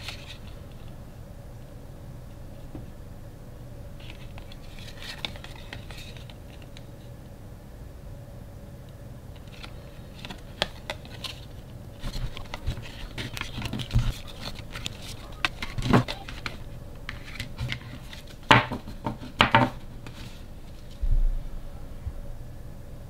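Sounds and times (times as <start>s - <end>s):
card tags rustling: 4.0s - 6.8s, 9.4s - 19.0s
cards tapping on wooden table: 18.5s - 19.8s.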